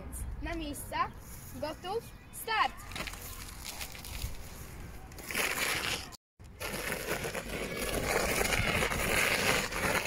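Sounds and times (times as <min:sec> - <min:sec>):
shoe sole scraping asphalt: 0:02.9 - 0:10.0
bicycle tyres skidding on asphalt: 0:05.2 - 0:10.0.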